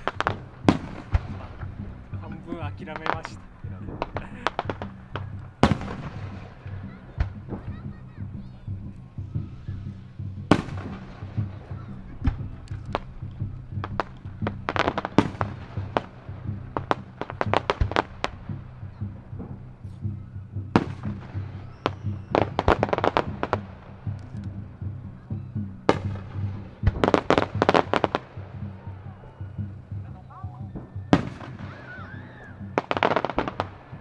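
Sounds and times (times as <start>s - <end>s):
firework shells bursting: 0.0s - 7.8s, 10.5s - 19.6s, 25.9s - 34.0s
loud firework bangs: 0.0s - 8.5s, 10.4s - 34.0s
rapid firework crackling: 0.0s - 24.8s, 25.9s - 34.0s.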